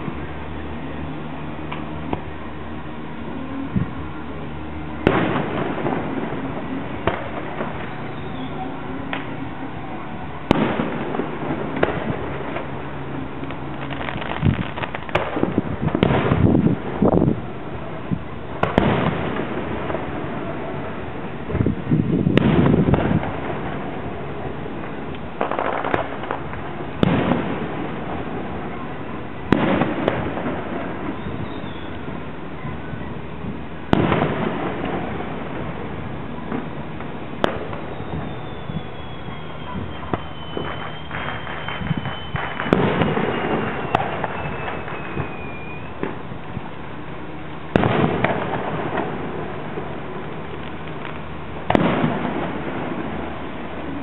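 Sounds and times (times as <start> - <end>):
fireworks crackling: 0.0 - 54.0
fireworks bangs: 3.3 - 46.7, 47.5 - 54.0
fireworks shells bursting: 36.5 - 46.2.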